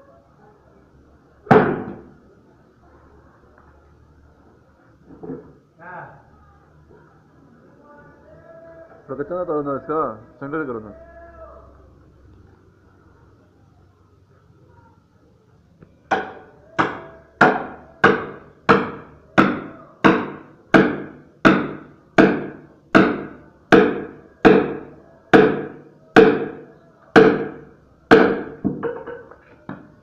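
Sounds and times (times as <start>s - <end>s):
hammer striking steel wedge: 16.1s - 26.6s.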